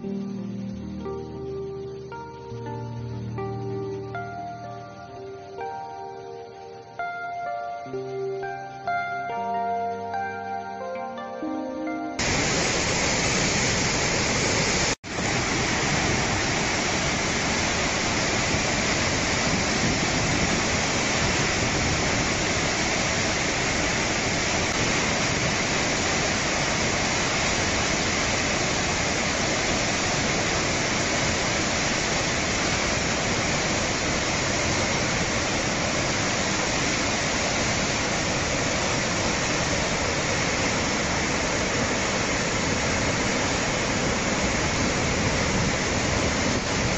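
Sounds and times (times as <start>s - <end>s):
river water rushing: 12.2s - 46.9s.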